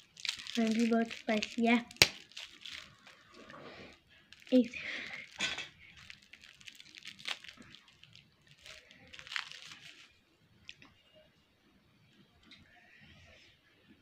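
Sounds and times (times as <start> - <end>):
plastic wrapper crinkling: 0.0 - 10.8.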